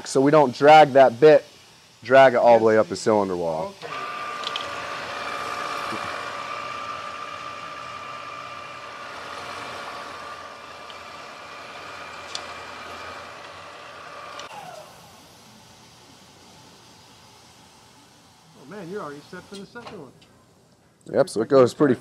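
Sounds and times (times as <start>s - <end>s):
electric motor whining: 2.4s - 15.6s
sharp machine click: 3.8s - 4.8s, 12.2s - 12.6s.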